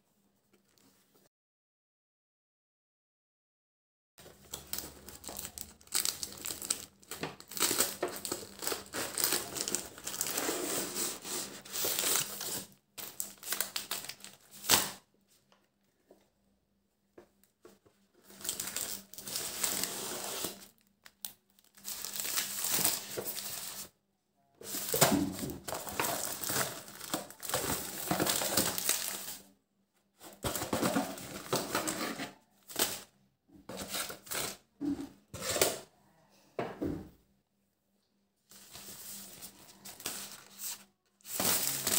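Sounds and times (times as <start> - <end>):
plastic wrappers crinkling: 4.2 - 15.0, 18.2 - 23.9, 24.6 - 29.5, 30.3 - 33.1, 38.5 - 41.9.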